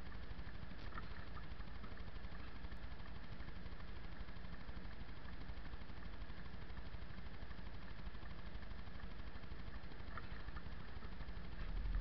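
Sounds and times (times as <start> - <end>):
car engine idling: 11.4 - 12.0.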